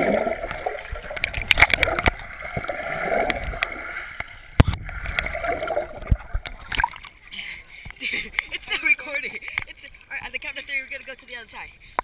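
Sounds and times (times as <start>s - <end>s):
water sloshing and gurgling: 0.0s - 11.2s.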